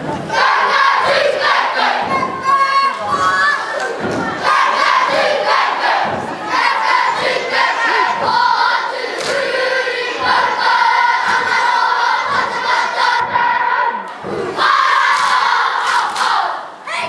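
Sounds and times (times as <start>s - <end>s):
low drum beat: 0.0s - 8.8s
children chanting in unison: 0.3s - 17.0s.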